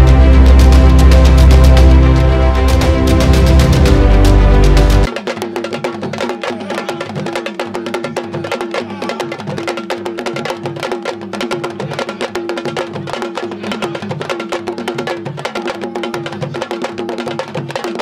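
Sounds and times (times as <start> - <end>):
hand drums playing fast rhythm: 0.0 - 18.0.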